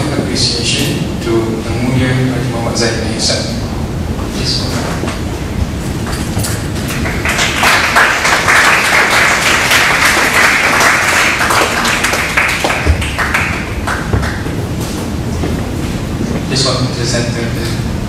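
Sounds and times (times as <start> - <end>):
audience applauding: 6.0 - 14.8.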